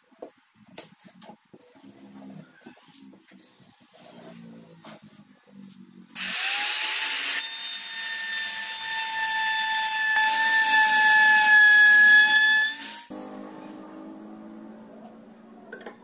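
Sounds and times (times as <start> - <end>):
trim router whining: 6.2 - 10.9.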